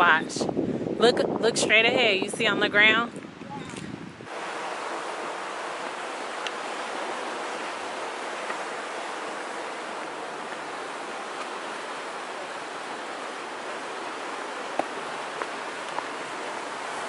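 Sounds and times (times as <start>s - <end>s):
ocean surf: 4.3s - 17.0s.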